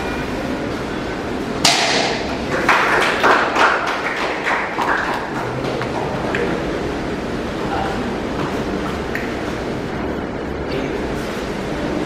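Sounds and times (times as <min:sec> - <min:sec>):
martial arts strikes snapping: 0:01.6 - 0:02.4.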